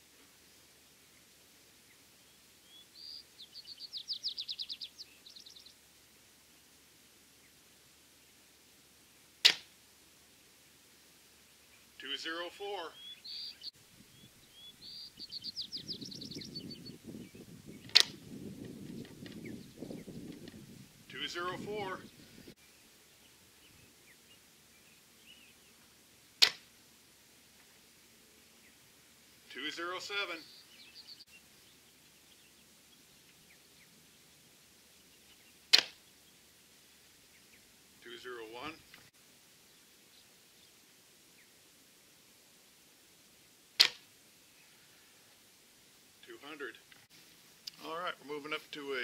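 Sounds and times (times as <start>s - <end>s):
bird chirping: 1.0s - 5.8s, 11.4s - 25.9s, 29.5s - 36.4s
bow shot crack: 9.4s - 9.8s, 17.8s - 18.3s, 26.4s - 26.7s, 35.7s - 36.0s, 43.8s - 44.1s.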